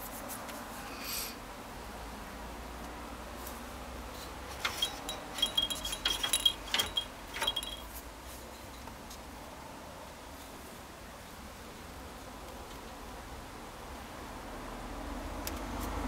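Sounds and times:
bell jingling in toy ball: 0:04.6 - 0:08.0.

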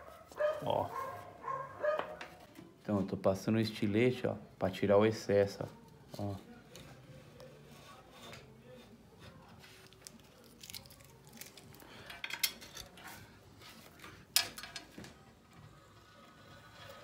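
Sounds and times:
knife blade scraping tile: 0:16.0 - 0:17.0.

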